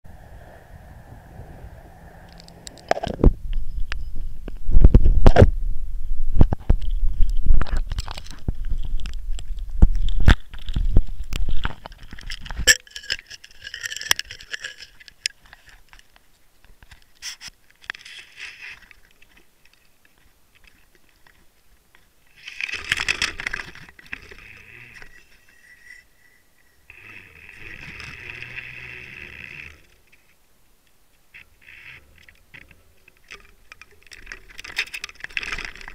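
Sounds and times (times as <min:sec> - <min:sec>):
scraping and rustling: 0:31.4 - 0:35.9.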